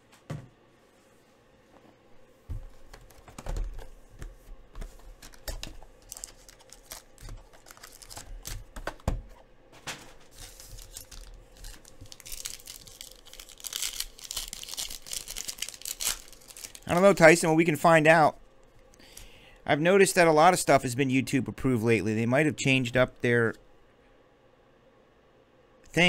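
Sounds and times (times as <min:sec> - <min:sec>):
plastic wrap crinkling: 0:04.8 - 0:09.1, 0:10.2 - 0:17.5
card pack torn open: 0:06.0 - 0:08.8, 0:10.3 - 0:17.1.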